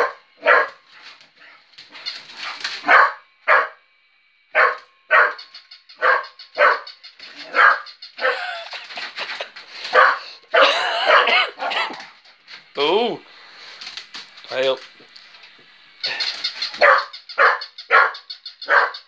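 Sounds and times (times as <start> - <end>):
dog barking: 0.0 - 0.8, 2.8 - 3.8, 4.5 - 8.5, 9.9 - 12.0, 16.8 - 19.0.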